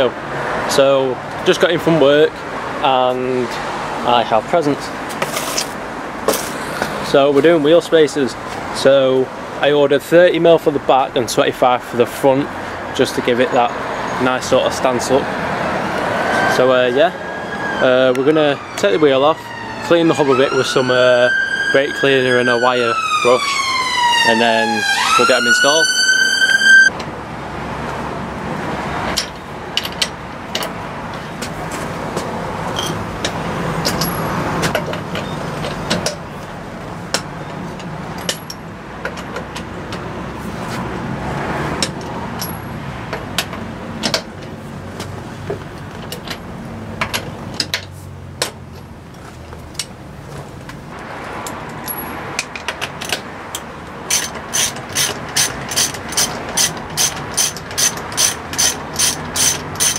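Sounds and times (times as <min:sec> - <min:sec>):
ratchet wrench clicking: 0:51.4 - 0:59.9.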